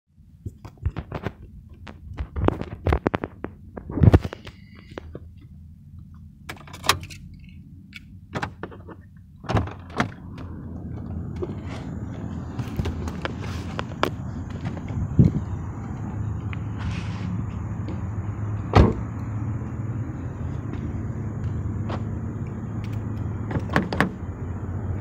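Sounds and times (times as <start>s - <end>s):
heavy thunk: 18.7s - 19.0s.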